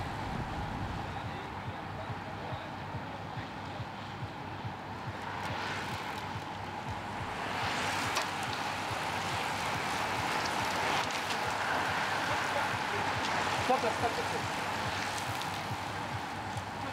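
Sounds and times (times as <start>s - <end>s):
bicycle tyres hissing on tarmac: 4.9s - 16.9s
bicycle mechanical clicks: 5.2s - 16.8s.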